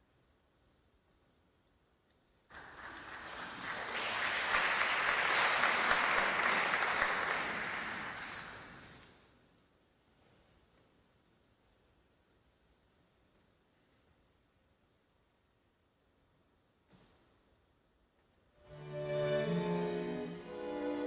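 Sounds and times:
audience applauding: 2.5s - 9.0s.

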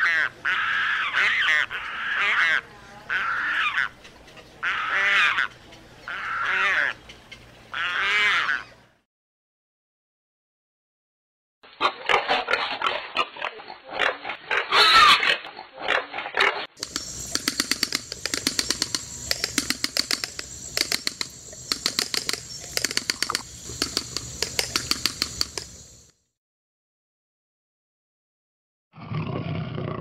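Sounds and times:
peccary harsh calls: 11.9s - 25.6s
rapid sharp clicks: 16.8s - 25.8s.

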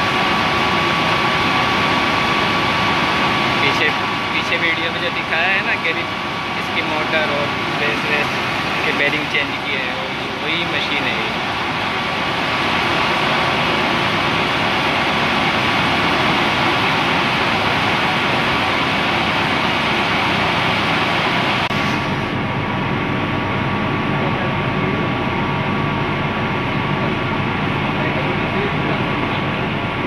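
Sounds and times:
washing machine spinning: 0.0s - 30.0s.

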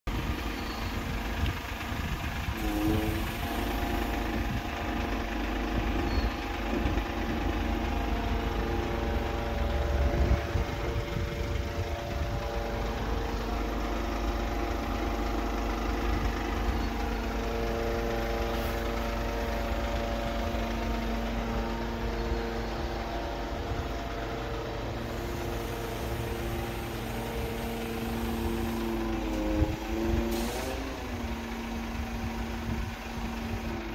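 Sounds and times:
diesel engine idling: 0.1s - 33.9s.

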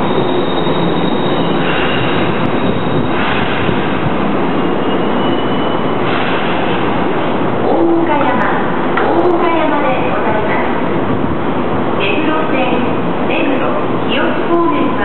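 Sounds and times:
wheel squeals: 0.0s - 3.2s
train wheels rumbling on rail: 0.0s - 15.0s.

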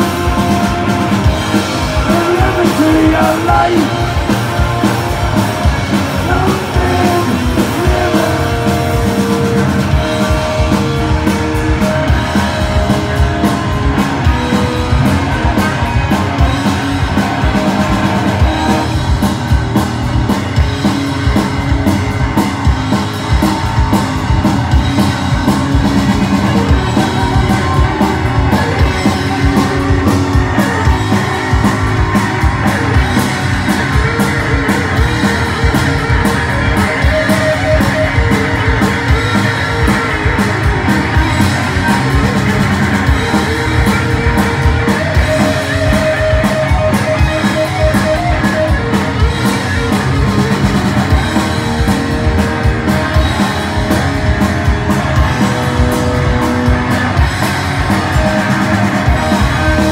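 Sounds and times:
bass guitar: 0.0s - 59.9s
distorted electric guitar: 0.0s - 59.9s
pounding drum kit: 0.0s - 59.9s.

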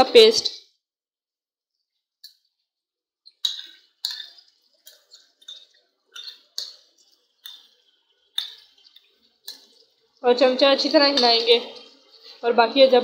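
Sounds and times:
hot oil crackling and spattering: 3.2s - 13.0s.

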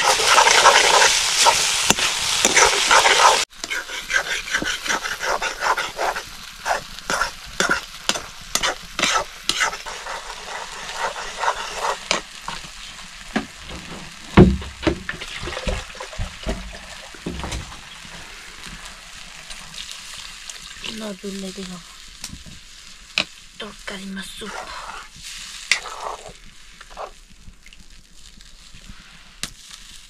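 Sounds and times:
spoon scraping a pan: 0.0s - 12.7s, 24.4s - 27.2s
food sizzling in a pan: 0.0s - 30.0s
dull thumps: 13.3s - 17.9s.

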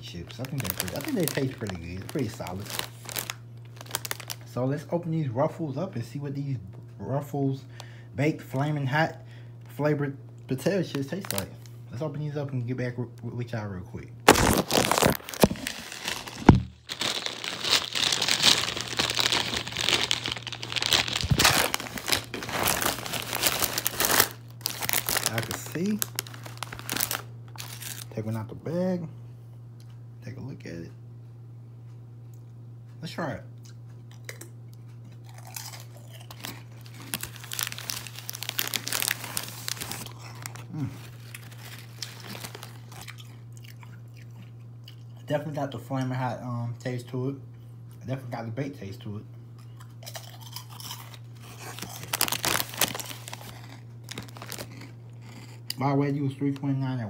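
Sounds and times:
plastic chip bag crinkling: 0.0s - 4.6s, 10.6s - 11.7s, 14.3s - 28.3s, 35.3s - 44.0s, 49.8s - 55.8s
steady low hum: 0.0s - 57.0s.

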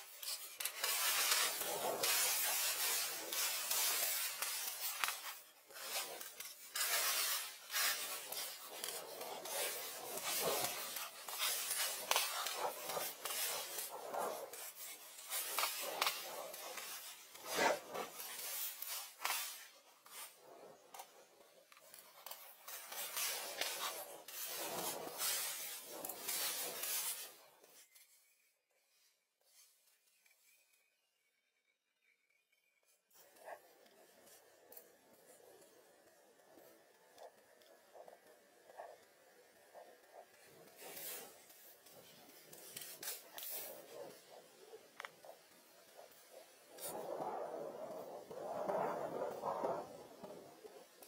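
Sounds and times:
dry thatch rustling and scraping: 0.0s - 20.3s, 21.9s - 27.4s, 40.4s - 47.1s.

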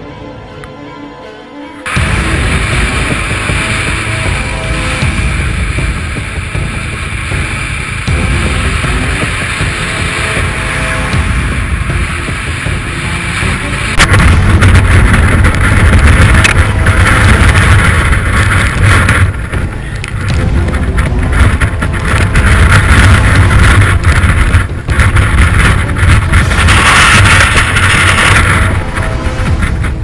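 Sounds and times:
strong wind buffeting microphone: 1.9s - 30.0s.

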